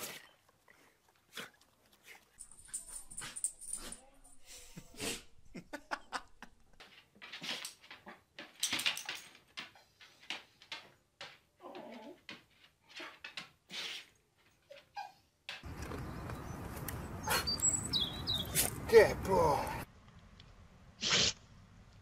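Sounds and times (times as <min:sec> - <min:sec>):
dog sneezing: 0:21.0 - 0:21.4.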